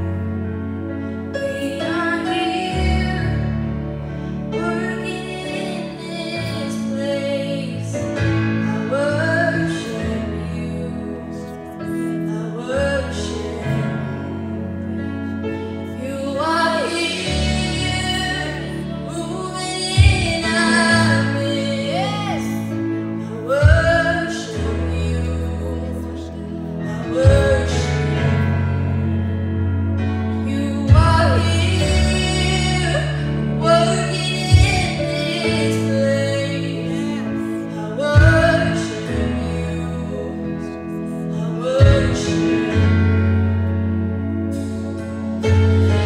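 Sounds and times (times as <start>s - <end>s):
instrumental accompaniment: 0.0s - 46.0s
women singing gospel song: 16.0s - 28.5s.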